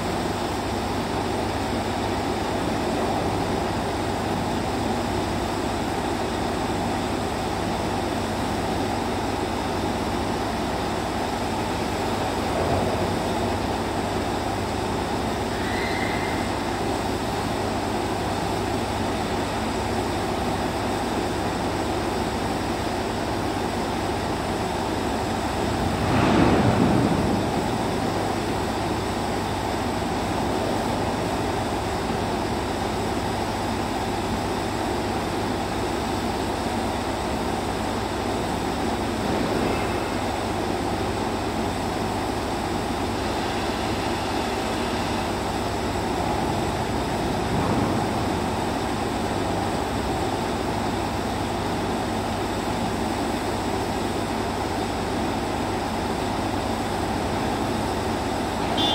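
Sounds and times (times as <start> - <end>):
industrial machinery humming: 0.0 - 58.9.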